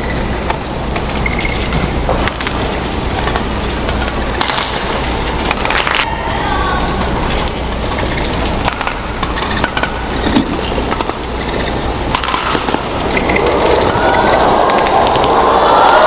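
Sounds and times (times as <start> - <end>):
shoe squeaks on court: 1.0 - 1.7
arena crowd noise: 5.8 - 7.5, 12.3 - 16.0
racket striking shuttlecock: 12.1 - 12.8.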